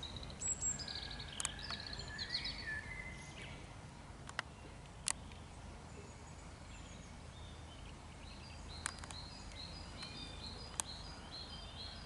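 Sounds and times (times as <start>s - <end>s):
songbirds chirping and singing: 0.0s - 12.0s
sharp clicks: 1.4s - 1.8s, 4.2s - 5.4s, 8.8s - 11.0s.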